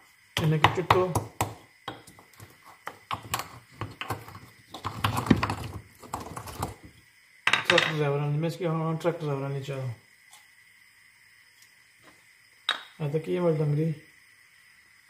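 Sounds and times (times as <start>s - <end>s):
wooden pestle pounding in mortar: 0.4s - 6.8s.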